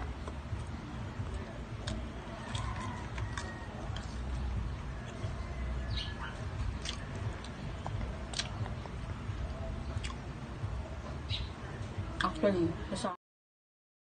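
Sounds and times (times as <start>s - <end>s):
crunchy chewing: 0.0s - 10.3s
low steady rumble: 0.0s - 13.1s
faint bird chirp: 4.8s - 7.9s, 10.8s - 11.9s.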